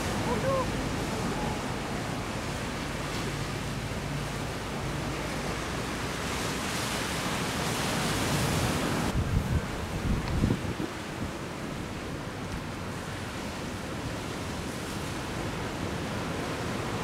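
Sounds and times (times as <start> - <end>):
low gusty wind rumble: 0.0 - 17.0
ocean surf breaking: 0.0 - 17.0
wind buffeting microphone: 4.7 - 17.0.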